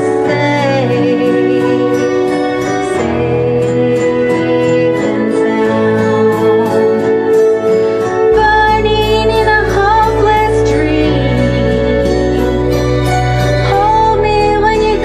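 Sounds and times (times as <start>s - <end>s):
karaoke backing chords: 0.0s - 15.0s
woman singing: 0.0s - 15.0s
deep bass: 8.0s - 15.0s.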